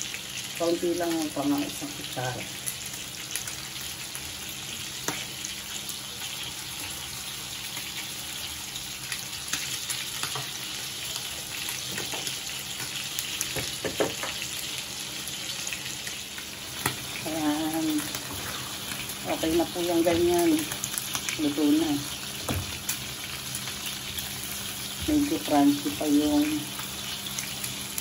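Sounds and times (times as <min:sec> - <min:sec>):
food sizzling in a frying pan: 0:00.0 - 0:28.0.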